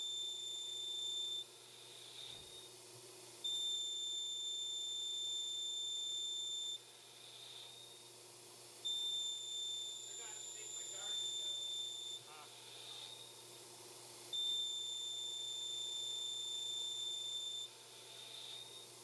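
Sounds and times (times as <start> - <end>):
lathe whine: 0.0 - 19.0.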